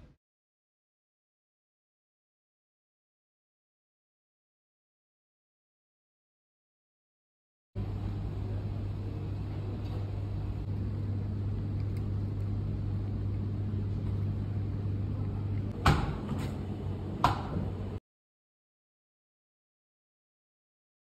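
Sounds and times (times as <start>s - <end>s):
steady low hum: 7.8s - 18.0s.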